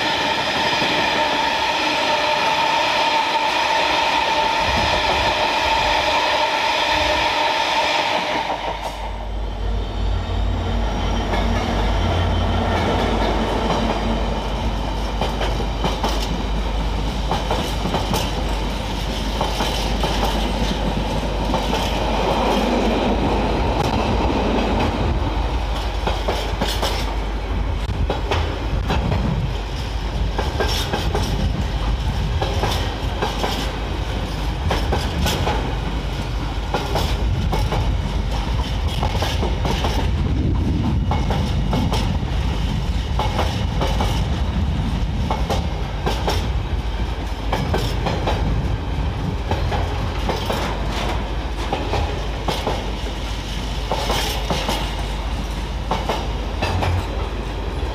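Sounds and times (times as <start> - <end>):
train wagons rumbling past: 0.0 - 57.9
wheels clacking over rail joints: 15.0 - 27.2, 45.2 - 57.9.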